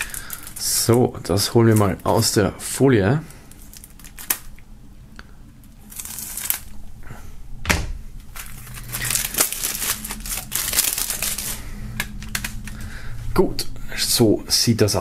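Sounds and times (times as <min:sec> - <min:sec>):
plastic film tearing and crinkling: 0:00.0 - 0:02.4, 0:03.5 - 0:04.6, 0:05.6 - 0:06.8, 0:08.2 - 0:12.9.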